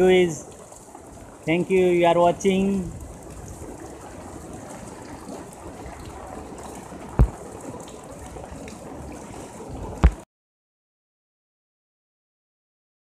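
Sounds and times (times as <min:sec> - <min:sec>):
rain on a wet street: 0:00.0 - 0:10.2.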